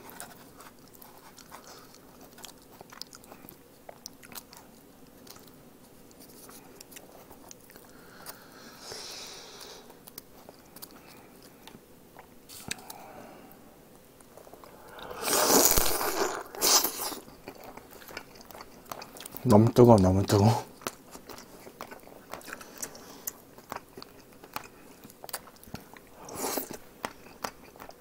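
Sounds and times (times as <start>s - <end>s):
soft chewing: 0.0s - 28.0s
short breathy hiss: 14.5s - 17.1s.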